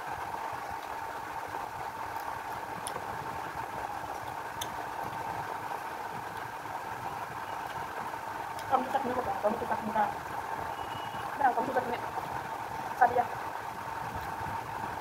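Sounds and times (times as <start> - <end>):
faint clicks of eating by hand: 0.6 - 1.0, 2.1 - 3.1, 4.1 - 5.2, 8.5 - 9.0.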